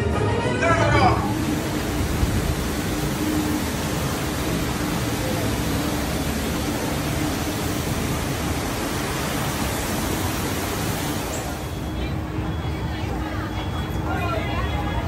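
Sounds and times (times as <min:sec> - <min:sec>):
loud rushing hiss: 0:01.2 - 0:11.8.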